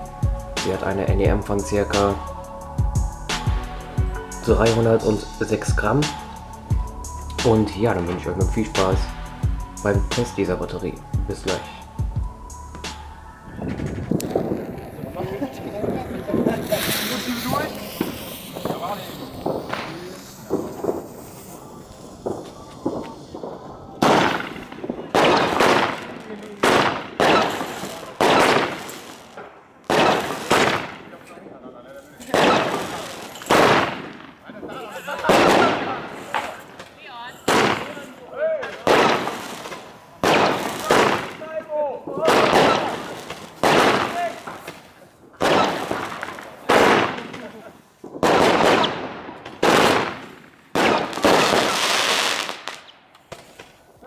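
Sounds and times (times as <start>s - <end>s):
fireworks sharp bangs: 13.7s - 31.6s, 32.2s - 54.0s.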